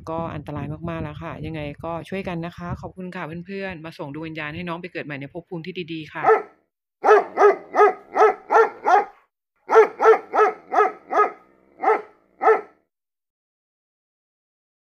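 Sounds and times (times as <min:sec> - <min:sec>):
dog barking: 0:06.2 - 0:12.8.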